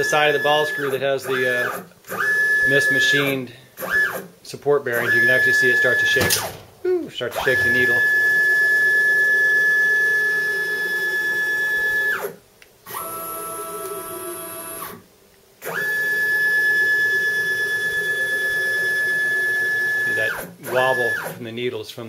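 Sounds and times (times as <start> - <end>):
stepper motor whine: 0.0 - 3.2, 5.0 - 15.0.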